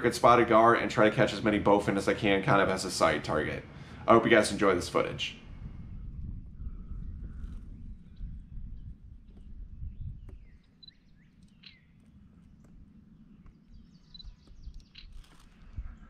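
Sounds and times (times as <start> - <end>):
wind rumble: 0.0 - 16.0
bird chirps and whistled calls: 9.9 - 12.0, 13.4 - 15.4.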